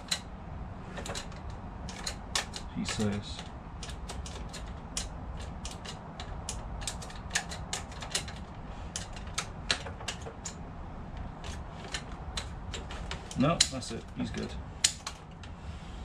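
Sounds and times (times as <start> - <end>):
sharp mechanical clicks: 0.0 - 0.3, 0.9 - 15.6.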